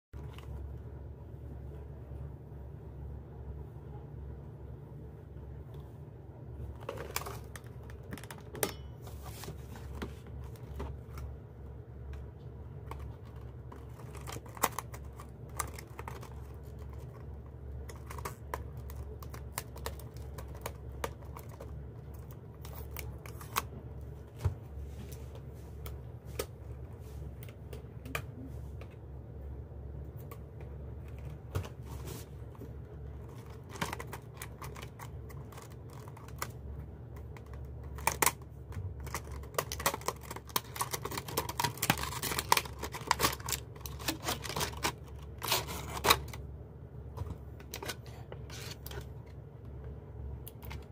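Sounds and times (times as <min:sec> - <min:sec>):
steady low hum: 0:00.2 - 0:50.9
plastic packaging clicking and crinkling: 0:06.7 - 0:11.4, 0:12.0 - 0:23.8, 0:32.4 - 0:46.4.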